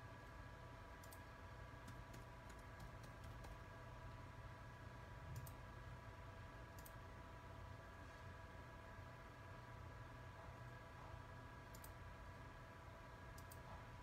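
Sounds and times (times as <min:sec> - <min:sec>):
faint electrical hum: 0:00.0 - 0:14.0.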